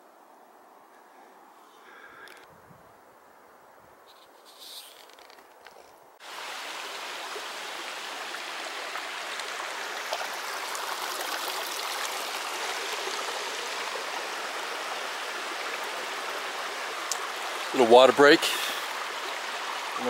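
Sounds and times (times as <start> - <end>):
stream running over rocks: 6.2 - 20.0.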